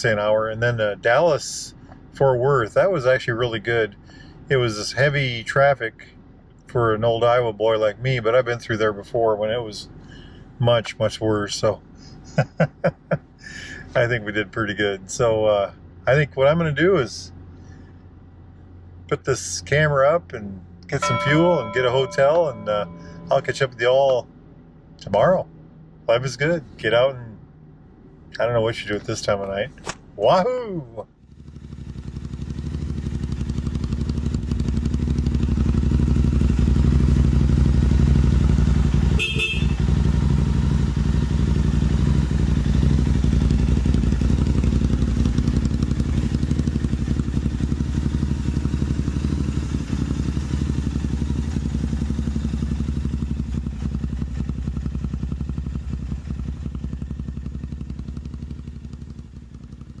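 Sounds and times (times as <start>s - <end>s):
motorcycle engine idling: 31.2s - 60.0s.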